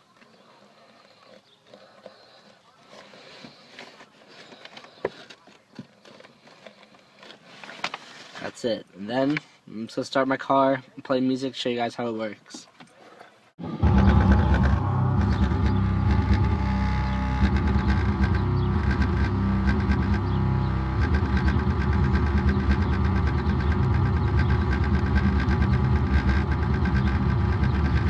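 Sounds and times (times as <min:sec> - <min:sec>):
bass-heavy music from subwoofer: 0:13.6 - 0:28.0
car engine running: 0:13.6 - 0:28.0.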